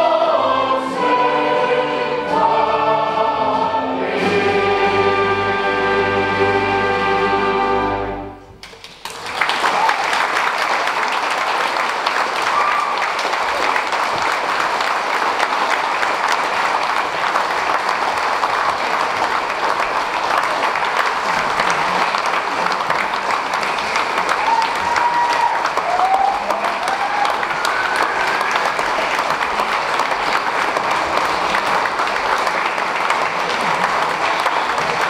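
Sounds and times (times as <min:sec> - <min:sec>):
audience applauding: 0:08.6 - 0:35.0
crowd calling out: 0:24.1 - 0:30.2.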